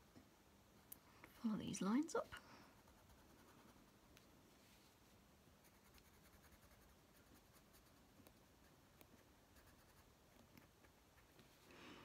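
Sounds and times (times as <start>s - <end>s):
coloured pencil scratching on paper: 2.8s - 3.9s, 5.6s - 10.1s.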